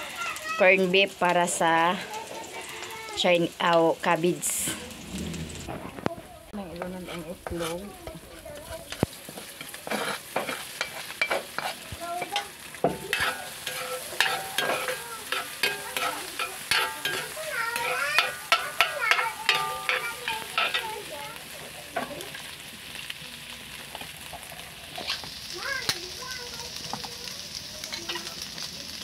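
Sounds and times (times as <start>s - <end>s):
egg sizzling in hot oil: 0.0s - 29.0s
metal ladle scraping a wok: 6.6s - 20.9s, 24.4s - 25.3s.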